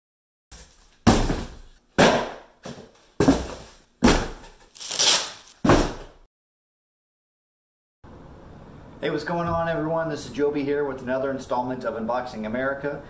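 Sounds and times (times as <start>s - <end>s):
cardboard boxes thudding on tile: 0.6s - 4.6s, 5.6s - 6.2s.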